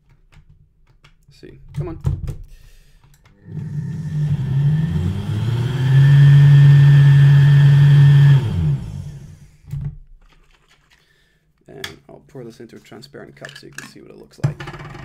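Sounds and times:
blender motor running: 3.4 - 9.5.

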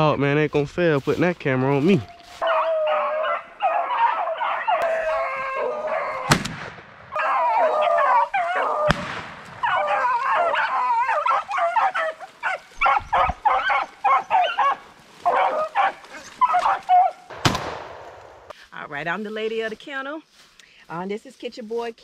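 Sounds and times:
hounds baying and barking: 1.6 - 6.3, 7.1 - 17.3
sharp cracks: 6.3 - 7.2, 8.9 - 9.6, 17.3 - 18.5.

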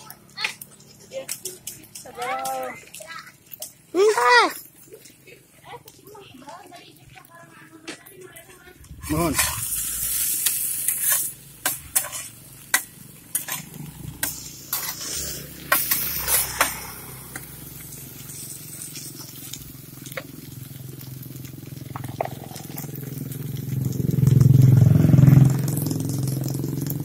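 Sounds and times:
vehicle engine: 0.0 - 6.9, 7.5 - 27.0
batter sizzling: 0.0 - 27.0
metal spatula scraping griddle: 9.0 - 19.6.

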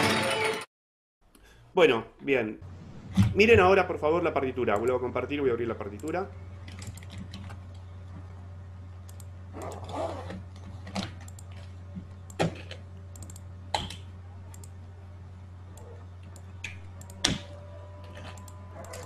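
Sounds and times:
steady low hum: 1.3 - 19.0
computer keyboard clicks: 13.2 - 14.0.

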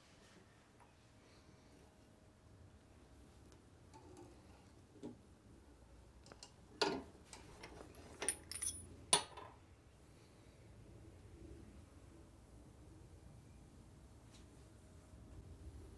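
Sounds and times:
small metal parts clinking: 7.5 - 9.5.

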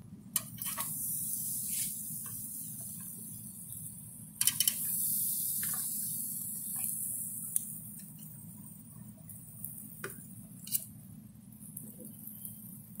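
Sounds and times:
metal tongs clicking on grate: 0.4 - 0.9, 4.4 - 4.9
ribs sizzling on a grill: 0.4 - 13.0.

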